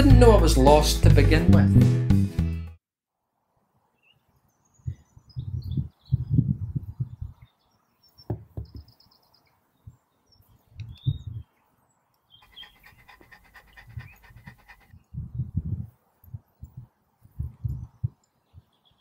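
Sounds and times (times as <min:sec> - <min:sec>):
birds chirping: 0:04.0 - 0:15.1, 0:16.4 - 0:19.0
dog panting quickly: 0:12.4 - 0:15.1.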